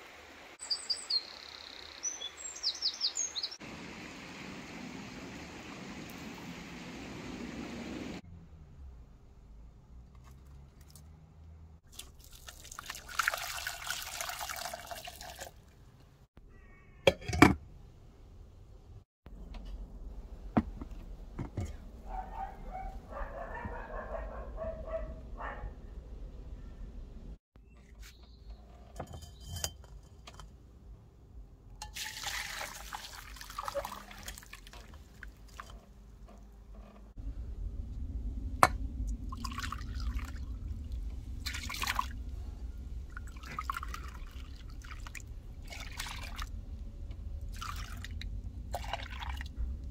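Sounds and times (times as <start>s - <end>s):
water pouring into saucepan: 11.9s - 15.7s, 31.8s - 35.7s, 39.3s - 40.7s, 41.4s - 42.2s, 43.1s - 46.5s, 47.5s - 49.5s
kitchenware clinks: 28.8s - 30.5s.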